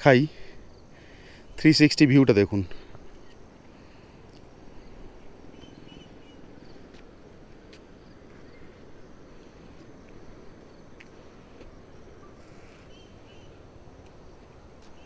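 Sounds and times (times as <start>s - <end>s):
faint bird chirps: 3.0s - 3.5s, 4.7s - 6.8s, 8.1s - 8.8s, 12.1s - 13.6s.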